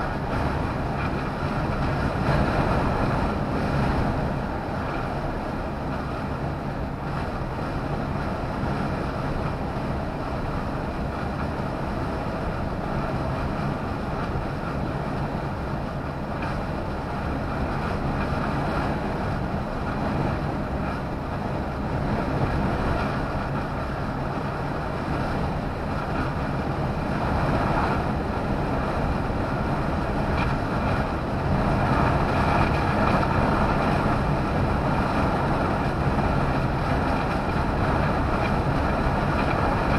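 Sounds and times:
lorry engine drone: 0.0 - 39.9
tyre and wind noise: 0.0 - 39.9.

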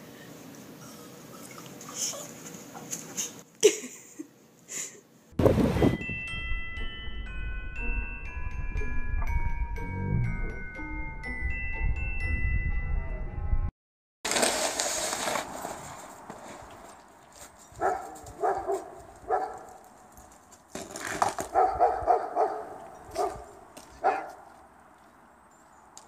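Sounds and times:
dog barking: 17.8 - 19.7, 21.5 - 24.5.

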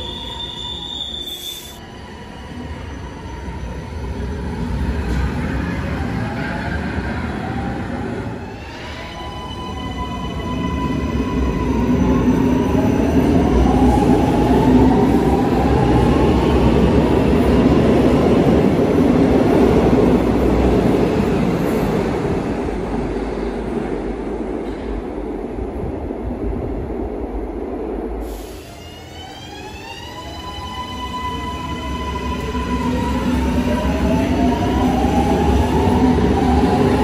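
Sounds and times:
train wheels rumbling on rails: 10.3 - 29.7.

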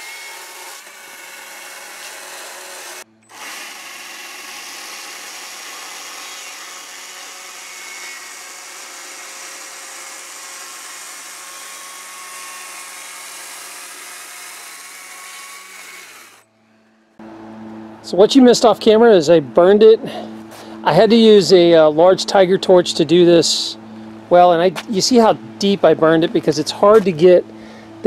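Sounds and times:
battery chainsaw cutting wood: 0.0 - 16.5.

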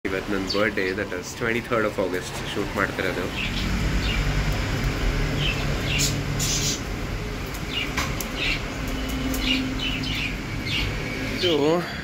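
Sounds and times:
budgerigars chirping: 3.0 - 4.4, 5.4 - 6.9, 7.7 - 11.6.

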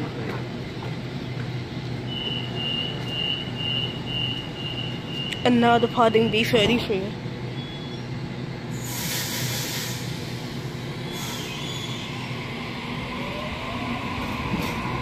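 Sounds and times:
electric train passing: 0.0 - 15.0
short hisses: 8.8 - 10.2.

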